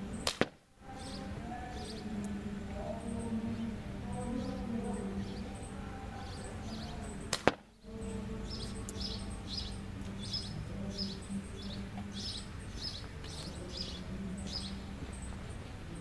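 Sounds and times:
bird chirping: 0.0 - 16.0
low steady hum: 0.0 - 16.0
slingshot sharp cracks: 0.2 - 0.6, 7.3 - 7.7.

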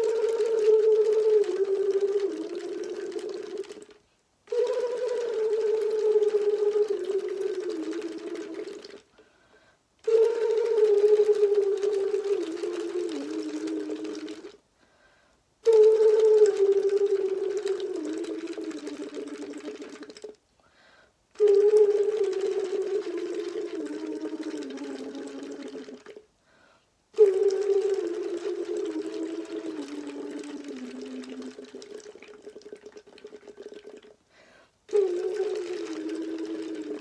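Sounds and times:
person humming through a straw: 0.0 - 9.2, 10.0 - 14.6, 15.6 - 20.4, 21.4 - 26.2, 27.2 - 34.2, 34.9 - 37.0
breathing: 9.1 - 9.9, 14.7 - 15.5, 20.6 - 21.2, 26.4 - 27.0, 34.2 - 34.8.

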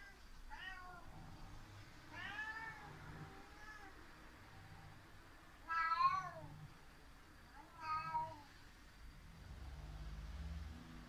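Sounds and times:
cat meowing: 0.0 - 1.1, 2.1 - 4.0, 5.6 - 6.6, 7.5 - 8.5.

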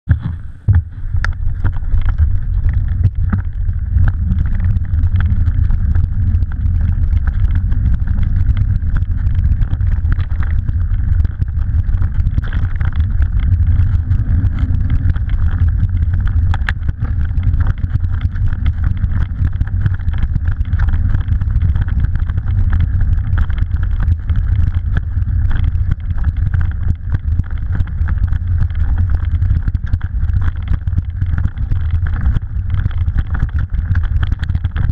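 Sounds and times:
wind buffeting microphone: 0.1 - 26.1.

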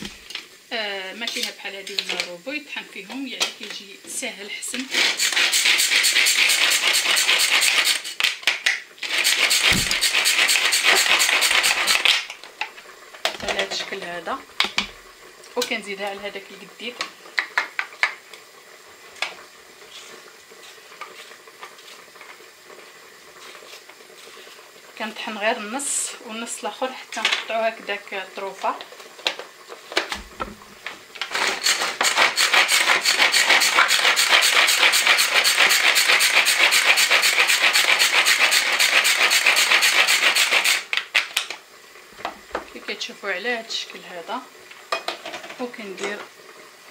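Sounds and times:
hand food chopper whirring and rattling: 4.9 - 13.7, 29.2 - 41.6.

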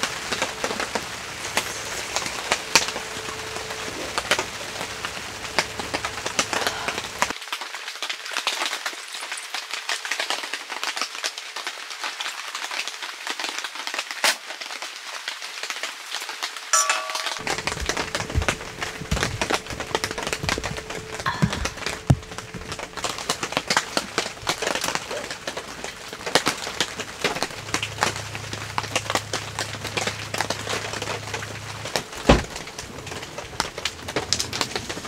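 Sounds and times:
low steady hum: 0.0 - 7.3, 16.8 - 35.0
rain dripping on tent and car: 0.0 - 35.0.

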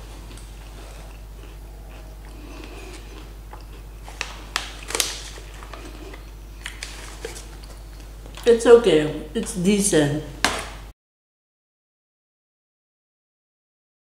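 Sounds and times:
steady low hum: 0.0 - 10.9
chewing crackers: 0.2 - 8.5
paper bag crinkling: 4.0 - 7.8.

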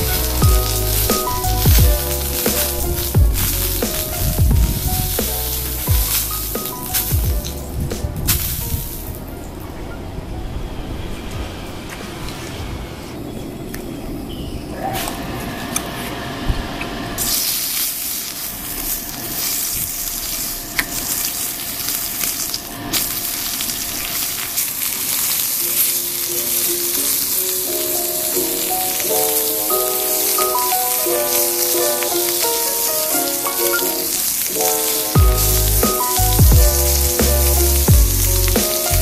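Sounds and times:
meat sizzling in a skillet: 0.0 - 7.1, 17.2 - 39.0
background music with simple melody: 0.0 - 11.4, 25.6 - 39.0.

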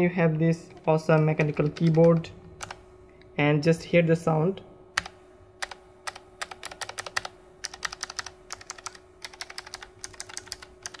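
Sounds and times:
keyboard clicking keystrokes: 0.7 - 2.8, 5.0 - 11.0.

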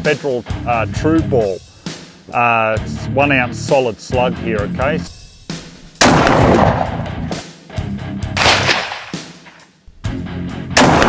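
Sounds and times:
shotgun shots with echo: 6.0 - 7.4, 8.4 - 9.4, 10.8 - 11.0.

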